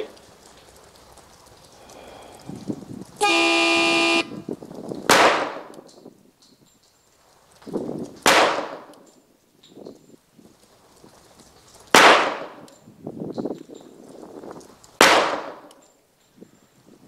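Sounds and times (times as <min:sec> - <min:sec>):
horn-like start signal: 0:03.2 - 0:04.3
pistol shots with echo: 0:05.1 - 0:05.8, 0:08.2 - 0:09.0, 0:11.9 - 0:12.7, 0:15.0 - 0:15.7.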